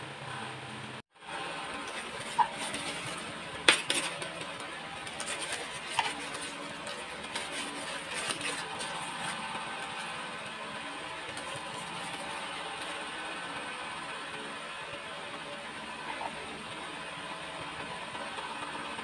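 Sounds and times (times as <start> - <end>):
plastic bag crinkling: 1.8 - 10.1.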